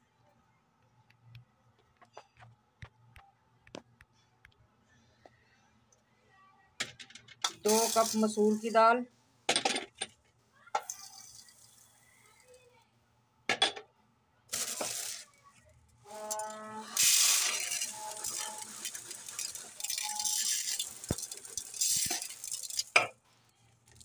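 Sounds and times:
dry lentils rattling as poured: 7.6 - 8.4, 10.9 - 11.8, 14.5 - 15.3, 16.1 - 23.0.

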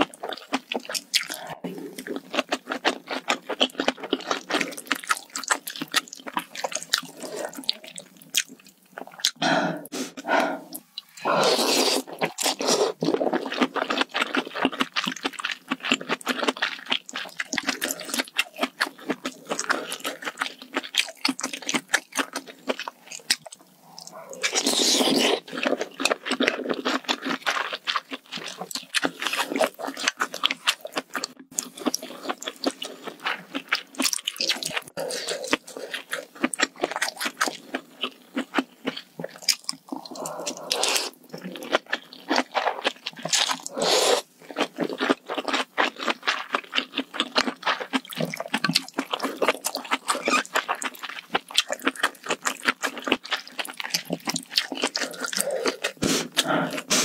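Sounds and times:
wet chewing with mouth clicks: 0.0 - 57.0
loud slurps: 9.4 - 13.1, 43.4 - 44.3, 55.3 - 57.0.

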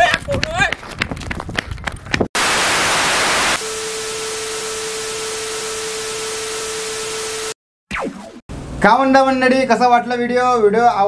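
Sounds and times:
tv static hiss: 2.4 - 7.6.

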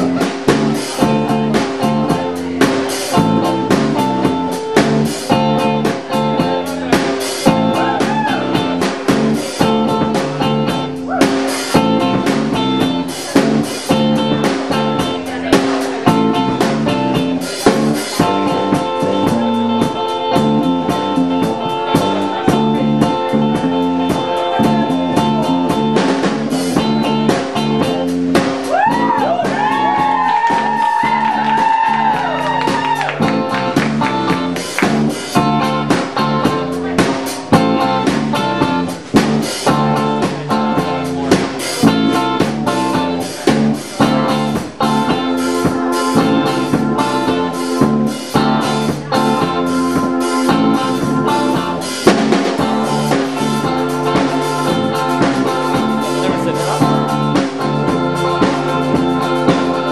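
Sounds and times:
drum kit playing: 0.0 - 59.9
electric guitars: 0.0 - 59.9
lead guitar bending notes: 0.0 - 59.9.

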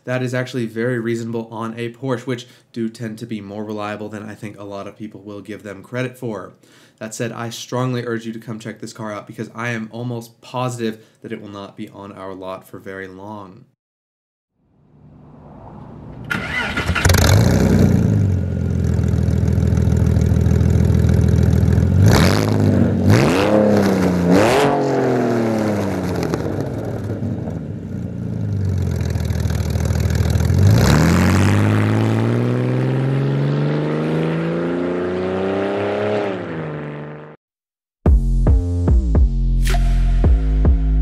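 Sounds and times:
car engine starting and idling: 14.9 - 22.6, 25.6 - 33.4
car accelerating away: 15.0 - 37.4
engine revving: 15.0 - 37.4.

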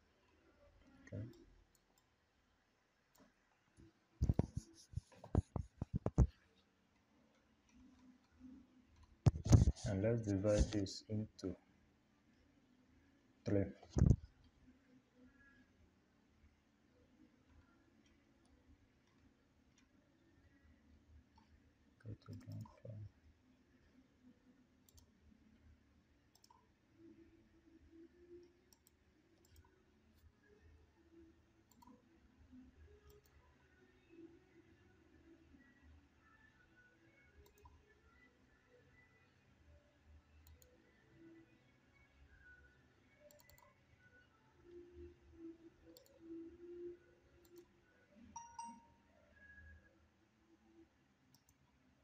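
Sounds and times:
computer mouse clicks: 1.1 - 2.1, 4.2 - 6.4, 7.3 - 9.9, 13.9 - 14.5, 22.2 - 23.0, 24.8 - 25.2, 26.3 - 26.7, 28.4 - 30.4, 31.6 - 32.1, 33.0 - 33.4, 37.4 - 37.8, 40.4 - 40.7, 43.3 - 43.8, 46.0 - 46.3, 47.4 - 47.7, 51.3 - 51.7
mouse and keyboard clicks: 4.2 - 6.3, 9.0 - 9.9, 13.9 - 14.2, 31.7 - 32.0, 43.3 - 43.8.

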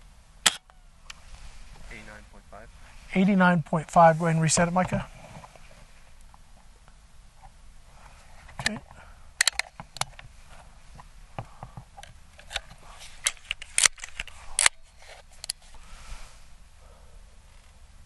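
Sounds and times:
air pistol pump and bolt clicking: 9.4 - 10.2.

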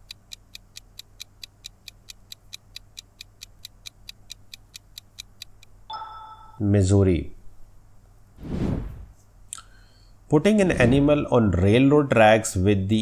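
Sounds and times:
rapid clock ticks: 0.0 - 5.9
short chime: 5.9 - 6.6.

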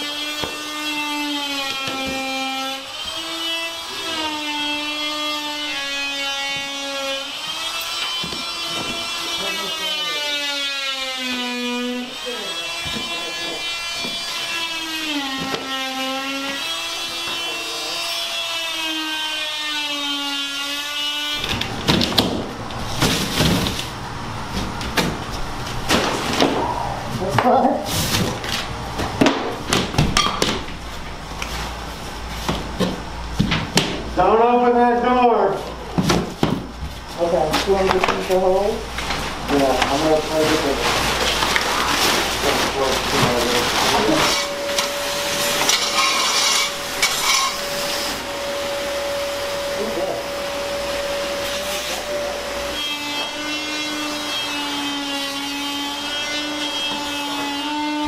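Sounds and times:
drywall cracking and snapping: 21.4 - 24.0, 25.8 - 26.6
steady low hum: 21.4 - 51.4
vacuum cleaner whining: 36.5 - 58.0
debris scraping on floor: 39.1 - 48.2.

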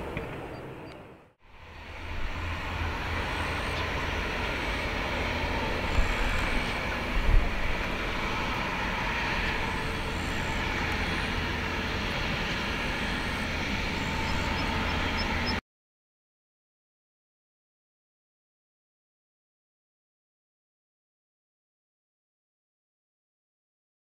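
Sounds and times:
aircraft taxiing: 0.0 - 15.6.

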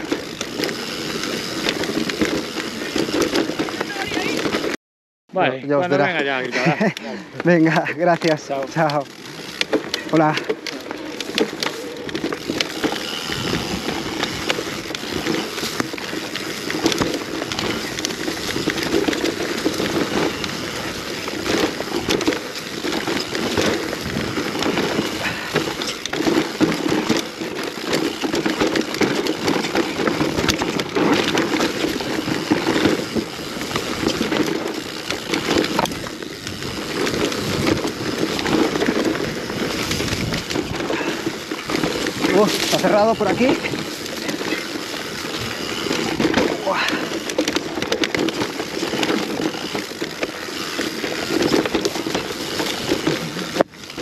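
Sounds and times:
bike clattering over bumps: 0.0 - 4.8, 6.0 - 54.0
bike tyre rumble on dirt: 0.0 - 4.8, 5.7 - 54.0.

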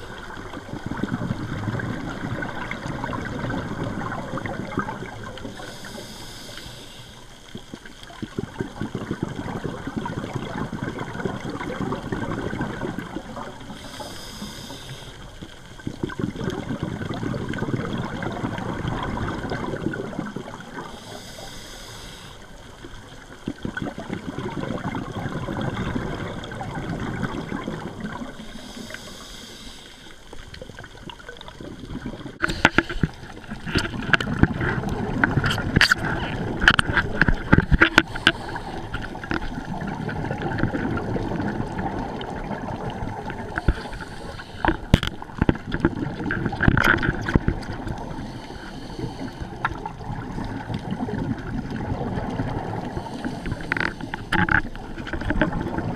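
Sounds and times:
exhaled bubbles gurgling: 0.0 - 55.9
regulator inhalation hiss: 5.4 - 7.4, 13.7 - 15.5, 20.9 - 22.6, 28.4 - 30.3, 32.4 - 33.3, 38.0 - 39.2, 43.6 - 44.9, 48.1 - 49.6, 52.9 - 54.3.

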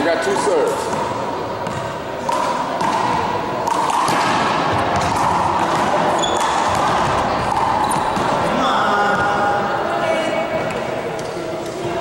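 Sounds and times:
steady background noise: 0.0 - 12.0
handball slapping wall and floor: 0.7 - 8.6.

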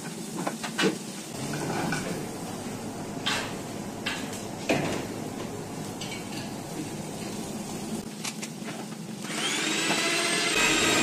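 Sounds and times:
onions sizzling in a pan: 0.0 - 8.1.

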